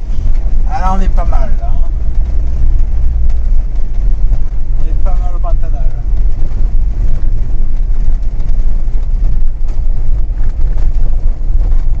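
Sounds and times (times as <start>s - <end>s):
engine and tyres on gravel: 0.0s - 12.0s
faint rattles: 0.0s - 12.0s.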